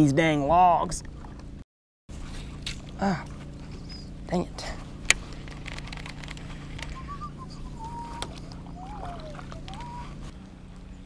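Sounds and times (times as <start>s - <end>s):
whistled notes: 6.8s - 10.3s.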